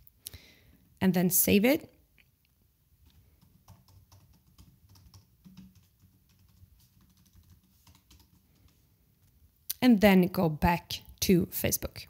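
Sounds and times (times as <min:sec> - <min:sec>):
computer keyboard typing: 0:03.0 - 0:08.8.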